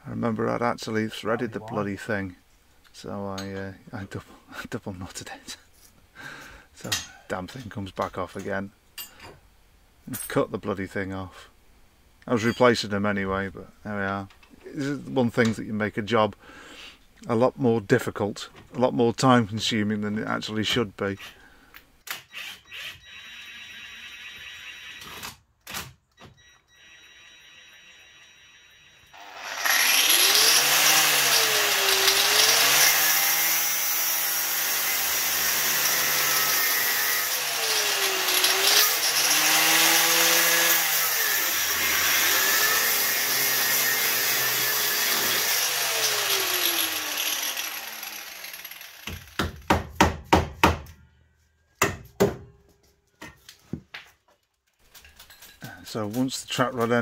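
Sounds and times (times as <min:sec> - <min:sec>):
angle grinder cutting metal: 0:29.1 - 0:49.4.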